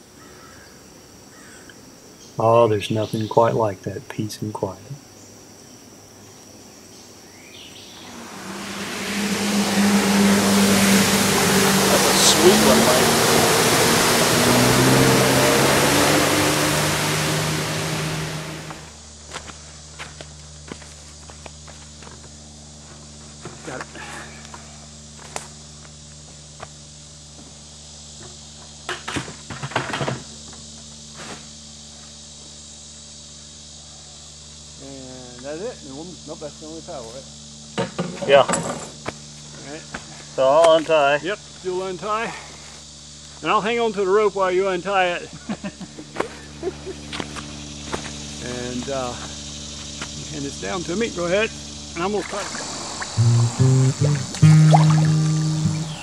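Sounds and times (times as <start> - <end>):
faint insects: 0.0 - 14.2, 18.9 - 56.0
jet ski engine drone: 7.8 - 19.1, 45.8 - 56.0
water spray rushing: 8.0 - 18.9, 52.4 - 56.0.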